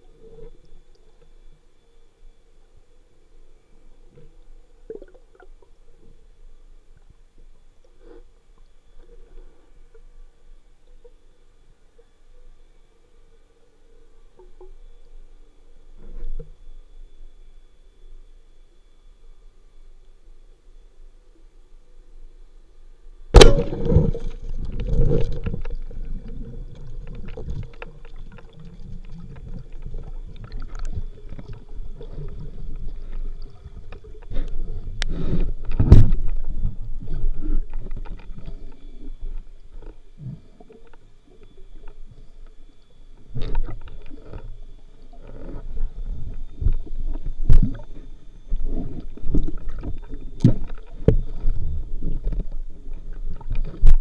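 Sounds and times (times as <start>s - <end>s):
muffled underwater rumbling: 23.2s - 54.0s
speargun crack underwater: 23.4s - 25.8s.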